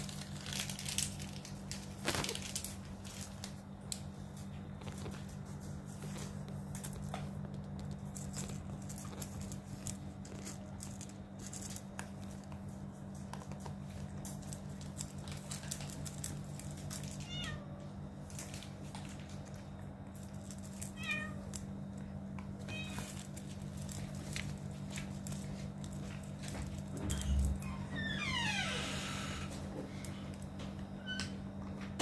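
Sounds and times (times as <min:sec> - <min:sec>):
cat crunching dry kibble: 0:00.0 - 0:27.6
steady low hum: 0:00.0 - 0:32.0
cat meowing: 0:17.2 - 0:17.8, 0:20.9 - 0:21.5.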